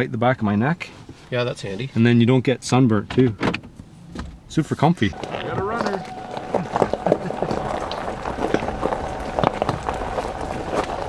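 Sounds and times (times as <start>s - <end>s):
low engine and road rumble: 3.7s - 11.0s
faint steady tone: 5.1s - 11.0s
tyres crunching on gravel: 5.2s - 11.0s.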